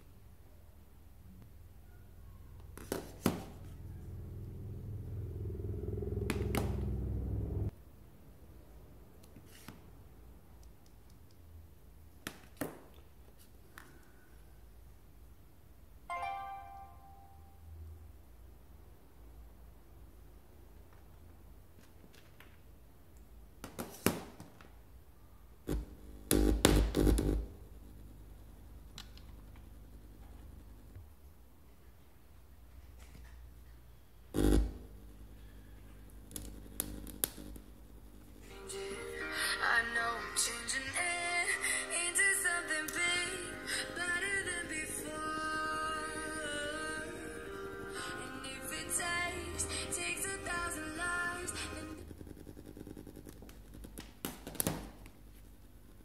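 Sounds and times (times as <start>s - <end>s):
speaker buzzing hum: 2.5s - 7.8s, 25.6s - 31.1s, 34.3s - 54.1s.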